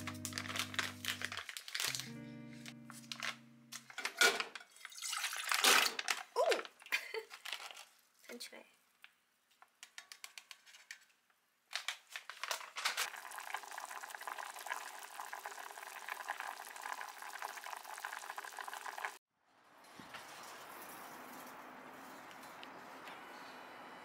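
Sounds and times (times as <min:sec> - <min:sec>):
broth boiling and bubbling: 0:13.0 - 0:19.2.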